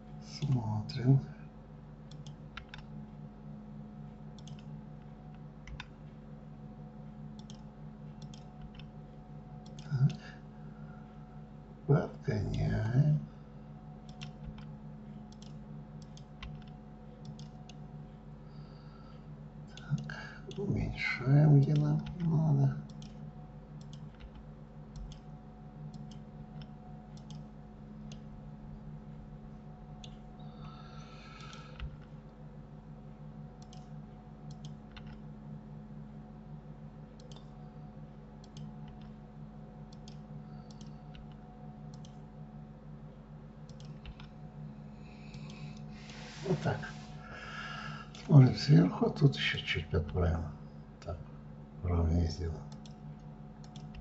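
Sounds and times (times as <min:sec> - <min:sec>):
steady low hum: 0:00.0 - 0:54.0
computer mouse and keyboard clicks: 0:02.1 - 0:02.9, 0:04.4 - 0:04.7, 0:05.3 - 0:05.9, 0:07.4 - 0:08.9, 0:14.1 - 0:14.7, 0:15.3 - 0:17.8, 0:22.9 - 0:23.2, 0:23.8 - 0:25.3, 0:25.9 - 0:27.5, 0:33.6 - 0:35.2, 0:37.2 - 0:37.6, 0:38.4 - 0:39.2, 0:39.9 - 0:42.2, 0:43.7 - 0:44.4, 0:52.7 - 0:54.0
mouse and keyboard clicks: 0:04.4 - 0:04.7, 0:08.2 - 0:08.9.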